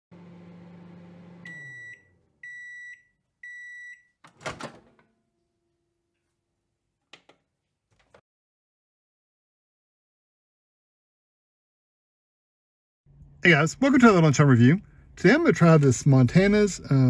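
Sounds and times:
microwave oven humming: 0.1 - 5.5
microwave door popping open: 4.3 - 5.0.

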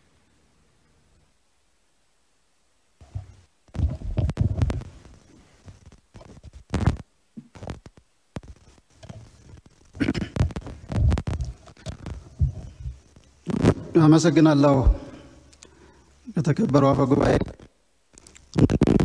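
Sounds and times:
microphone handling thumps: 3.0 - 9.2, 10.0 - 14.0, 14.7 - 15.3.

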